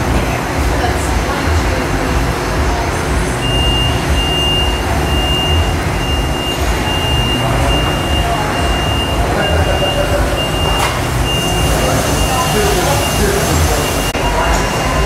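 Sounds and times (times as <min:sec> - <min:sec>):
bottling machinery running: 0:00.0 - 0:15.0
high-pitched beep: 0:03.4 - 0:15.0.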